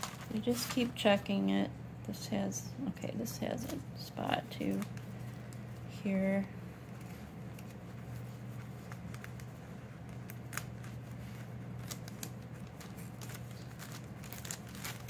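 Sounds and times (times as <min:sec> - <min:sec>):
paper clicks and crinkles: 0:00.0 - 0:01.1, 0:03.6 - 0:05.9, 0:06.8 - 0:15.0
steady low hum: 0:00.0 - 0:15.0.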